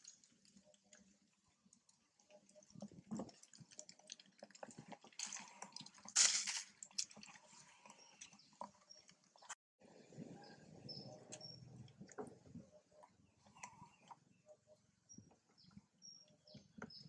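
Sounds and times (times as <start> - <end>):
monkey eating with wet smacking: 0.0 - 9.4.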